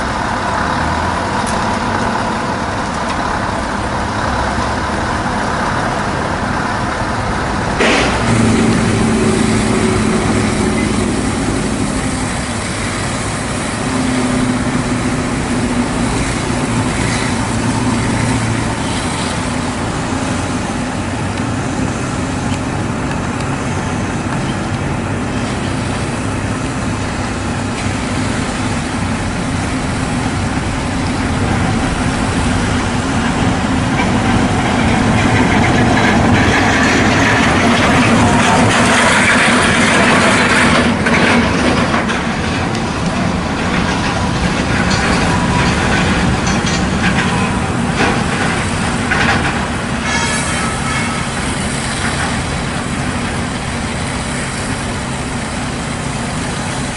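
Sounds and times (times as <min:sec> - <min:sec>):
heavy diesel truck engines: 0:00.0 - 0:56.9
high-pressure water jet spraying: 0:00.0 - 0:56.9
sharp knock: 0:07.8 - 0:09.0.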